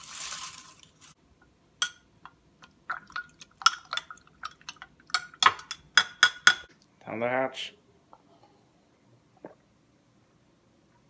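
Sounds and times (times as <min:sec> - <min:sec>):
spoon clinking against glass: 0:05.2 - 0:06.7.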